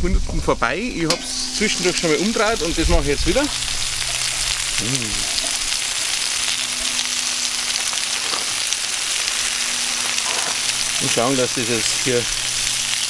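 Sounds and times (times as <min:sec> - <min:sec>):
chicken wings sizzling on a grill: 0:00.0 - 0:13.0.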